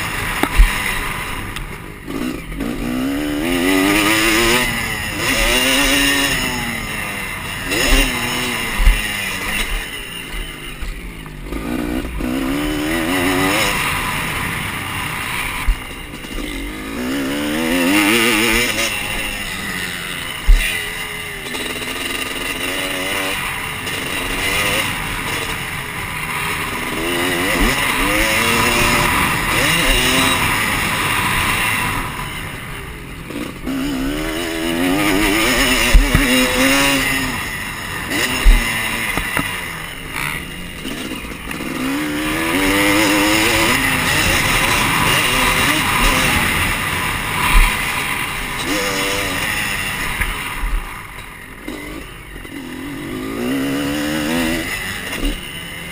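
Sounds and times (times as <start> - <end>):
dirt bike engine revving: 0.0 - 55.9
sharp thumps: 34.9 - 37.4, 38.0 - 39.7.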